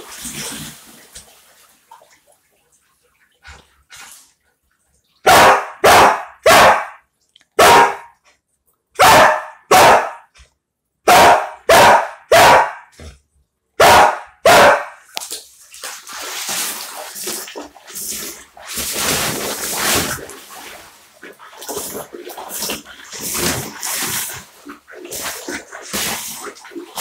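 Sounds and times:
water splashing: 0:00.0 - 0:08.0, 0:14.6 - 0:27.0
dog barking: 0:05.2 - 0:07.0, 0:07.6 - 0:08.2, 0:09.0 - 0:10.3, 0:11.1 - 0:12.9, 0:13.8 - 0:15.0.

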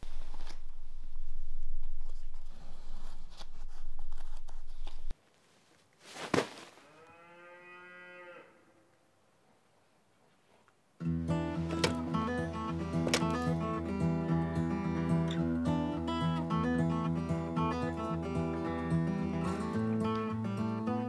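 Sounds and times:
deep low rumble: 0:00.0 - 0:05.1
cow mooing: 0:06.8 - 0:08.7.

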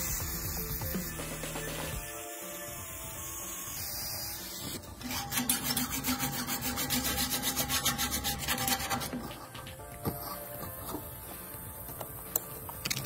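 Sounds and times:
grinder grinding: 0:00.0 - 0:11.2
hand file rasping on steel: 0:05.0 - 0:11.1.

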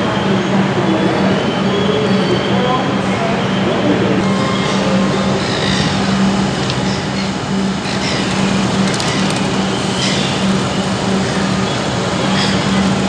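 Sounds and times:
train doors closing: 0:04.2 - 0:11.4
train equipment humming: 0:04.2 - 0:13.0
clicks: 0:08.0 - 0:09.8.

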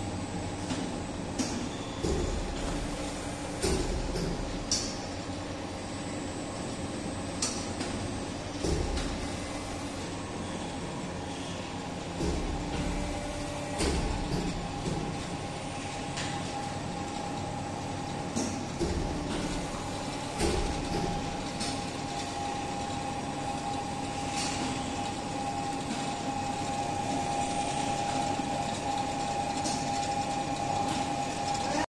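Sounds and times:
machine humming with high whine: 0:00.0 - 0:31.9
machine clicks and knocks: 0:07.4 - 0:09.3, 0:12.2 - 0:15.3, 0:18.3 - 0:22.4.

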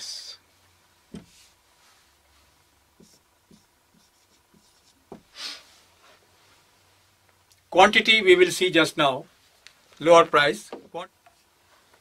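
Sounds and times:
marker scratching on whiteboard: 0:03.0 - 0:05.2.

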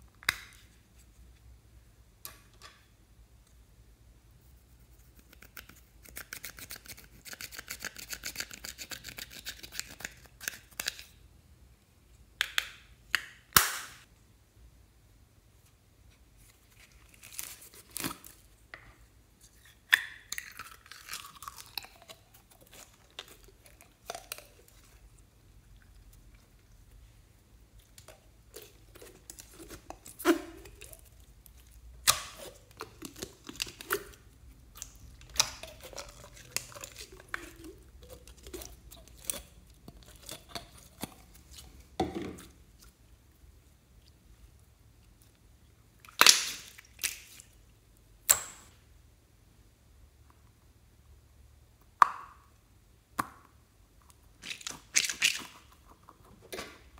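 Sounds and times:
fast scratching of eyeshadow: 0:04.4 - 0:10.3.

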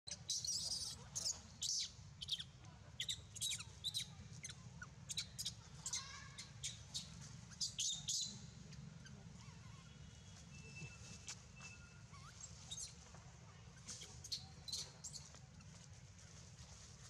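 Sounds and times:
high-pitched chirping calls: 0:00.1 - 0:08.4.

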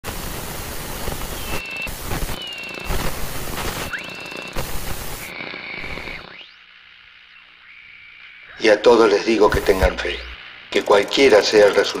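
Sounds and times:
radio static hiss: 0:00.0 - 0:12.0
high whistling tones: 0:01.0 - 0:06.6.

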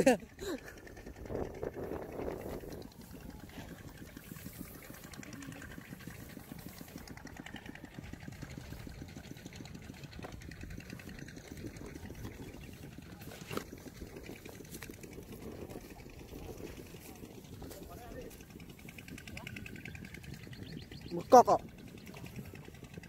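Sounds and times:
small engine running: 0:00.0 - 0:23.0.

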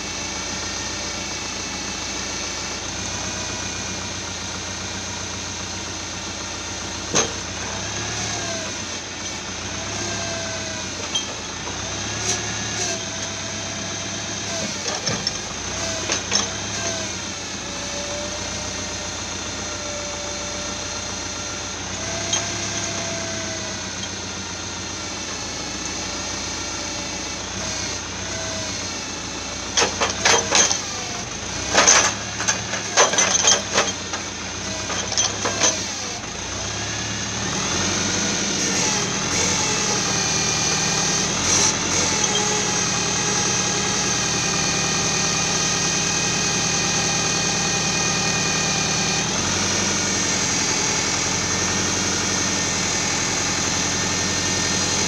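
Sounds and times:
tractor diesel engine under load: 0:00.0 - 0:55.0
logs knocking and clunking: 0:07.1 - 0:07.8, 0:29.8 - 0:36.1.

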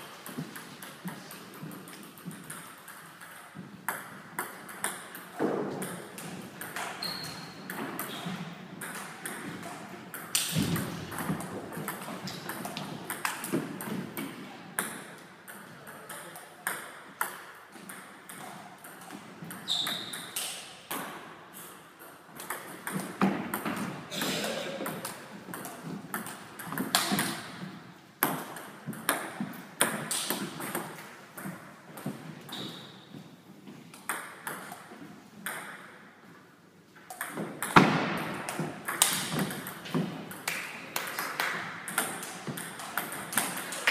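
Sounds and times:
table tennis ball hits: 0:07.7 - 0:21.2, 0:24.8 - 0:27.6, 0:37.1 - 0:43.9.

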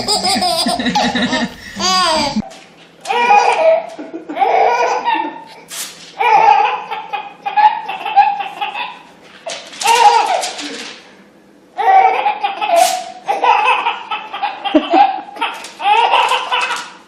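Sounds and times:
baby laughing: 0:00.0 - 0:02.5, 0:03.1 - 0:05.6, 0:06.2 - 0:09.0, 0:09.8 - 0:10.5, 0:11.8 - 0:17.0.

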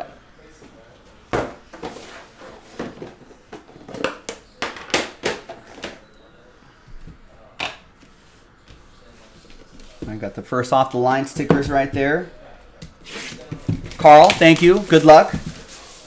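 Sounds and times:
card boxes knocking and rustling: 0:01.3 - 0:06.0, 0:13.1 - 0:15.9.

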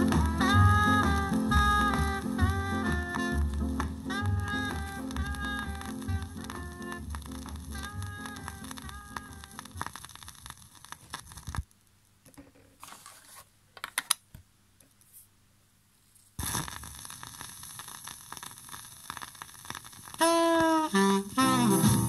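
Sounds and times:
ska horn music: 0:00.0 - 0:09.9, 0:20.2 - 0:22.0
vinyl crackle and hiss: 0:00.0 - 0:13.6, 0:14.8 - 0:22.0.

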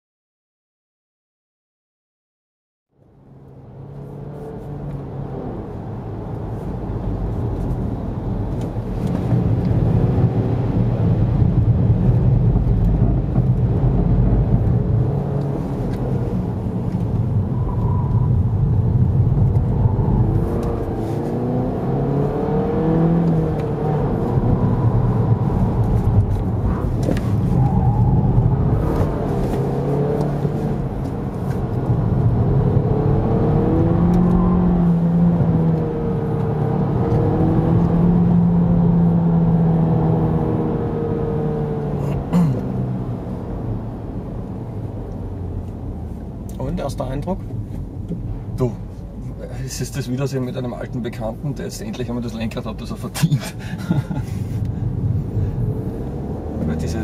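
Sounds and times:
tyre and road rumble: 0:06.7 - 0:52.0
car engine revving: 0:07.3 - 0:49.3, 0:50.5 - 0:57.0.

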